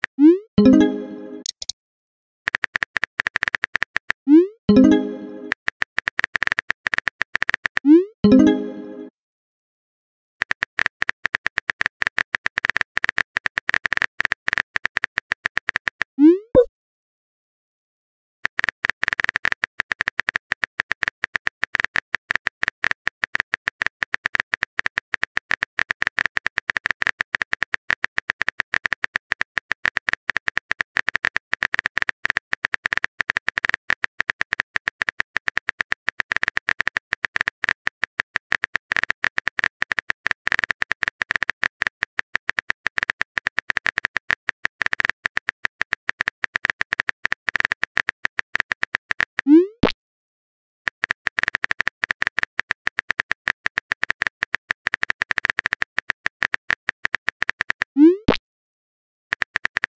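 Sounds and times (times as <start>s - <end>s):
keyboard typing clicks: 0.2s - 1.7s, 2.5s - 9.1s, 50.9s - 58.4s.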